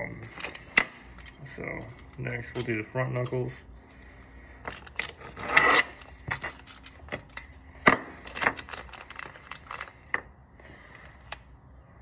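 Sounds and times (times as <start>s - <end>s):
plastic bags rustling: 8.1s - 10.2s.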